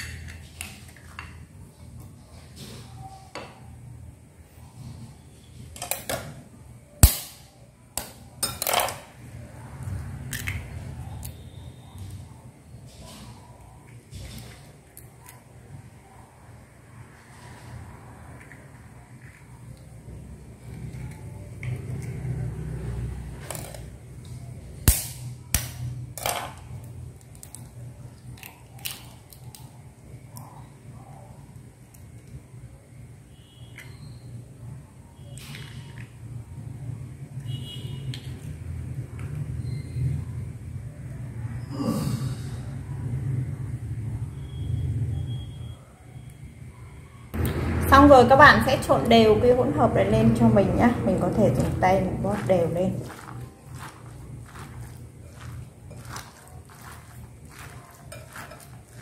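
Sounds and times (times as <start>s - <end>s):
eggshell crackling: 51.2s - 59.0s.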